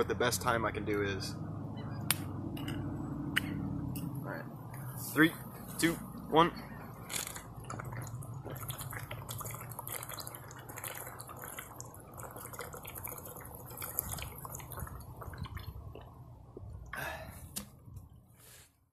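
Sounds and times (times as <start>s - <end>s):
person gulping water: 6.8s - 17.6s.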